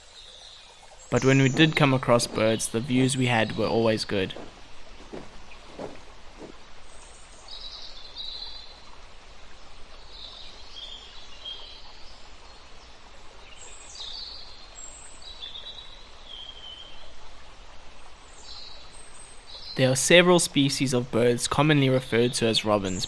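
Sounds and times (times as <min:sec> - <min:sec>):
steady background hiss: 0:00.0 - 0:23.0
robin singing: 0:00.2 - 0:08.8.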